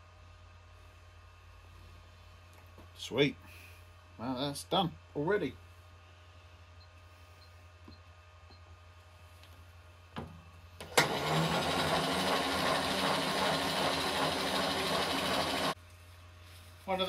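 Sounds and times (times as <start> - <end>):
milling machine motor running: 10.8 - 15.8.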